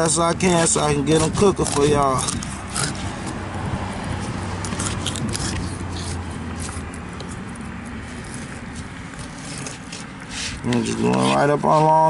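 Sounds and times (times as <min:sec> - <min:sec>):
knife clicking and scraping fish: 0:00.4 - 0:03.4, 0:04.6 - 0:07.6.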